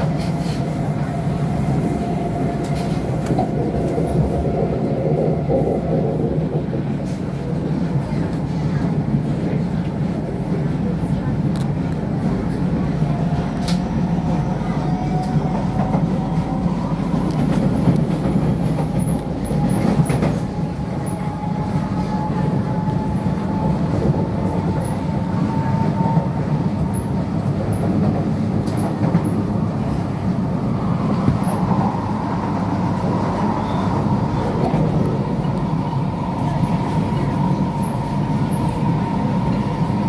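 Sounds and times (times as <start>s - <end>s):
train wheels rumbling on rail: 0.0s - 40.0s.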